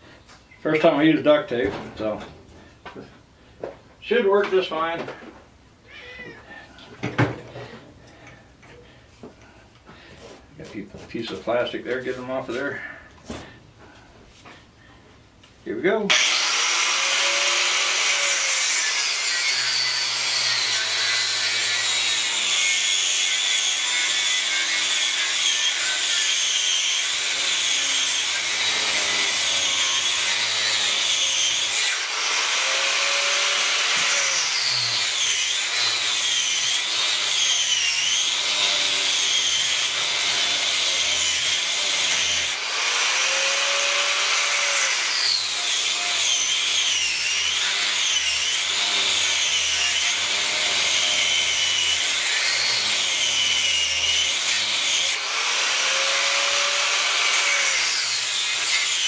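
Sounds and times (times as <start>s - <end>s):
angle grinder cutting metal: 16.1s - 59.0s.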